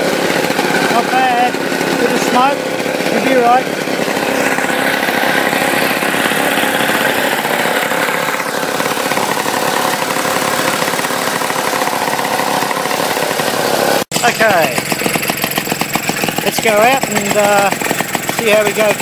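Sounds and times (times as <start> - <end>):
lawn mower engine idling: 0.0 - 19.0.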